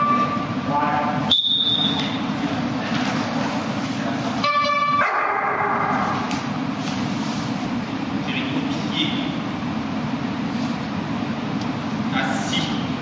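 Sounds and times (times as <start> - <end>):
dog barking: 5.0 - 6.1.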